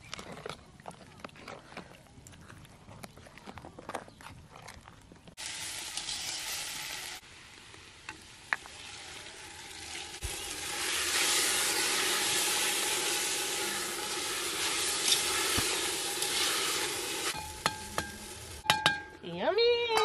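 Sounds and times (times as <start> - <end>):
greens sizzling in a pot: 5.4 - 18.6.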